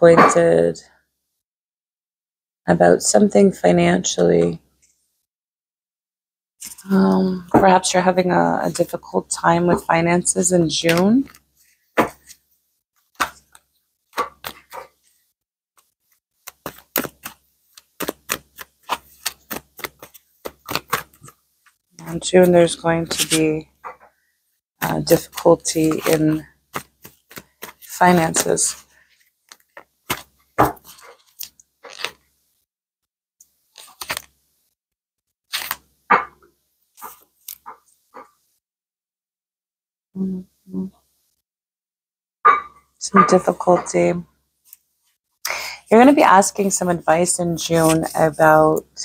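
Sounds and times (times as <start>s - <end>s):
cards clicking and tapping on table: 25.9s - 28.5s.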